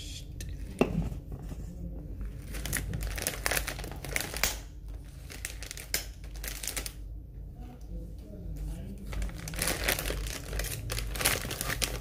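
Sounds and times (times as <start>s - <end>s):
chip bag crinkling: 2.4s - 7.0s, 9.0s - 12.0s.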